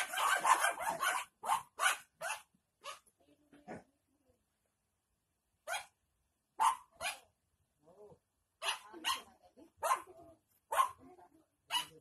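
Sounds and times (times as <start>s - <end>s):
dog barking: 0.0s - 3.0s, 5.6s - 6.0s, 6.6s - 7.3s, 8.6s - 10.1s, 10.7s - 11.0s, 11.7s - 12.0s.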